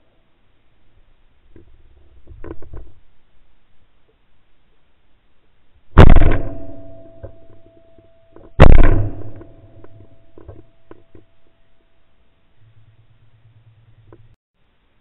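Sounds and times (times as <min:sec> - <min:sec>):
shotgun shots: 0:06.0 - 0:07.4, 0:08.6 - 0:09.8.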